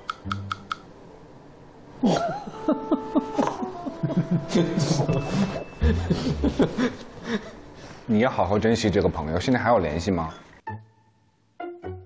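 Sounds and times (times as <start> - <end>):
people laughing: 2.0 - 7.6.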